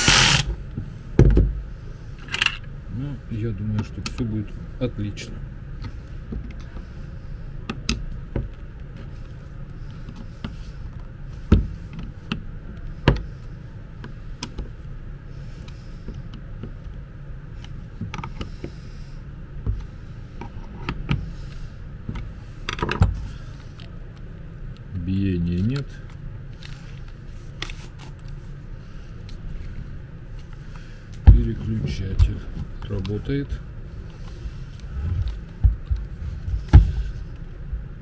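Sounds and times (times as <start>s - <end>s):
screwdriver turning screws: 0.0s - 0.5s
steady low hum: 0.0s - 38.0s.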